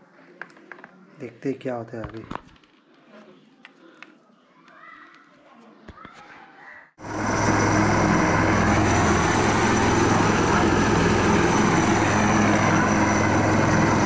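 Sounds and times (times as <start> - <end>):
loud steady engine noise: 7.0 - 14.0
thin high whine: 7.0 - 14.0.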